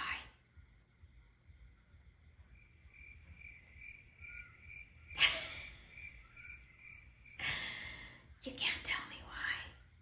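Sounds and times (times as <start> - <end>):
faint high chirp: 2.6 - 7.4.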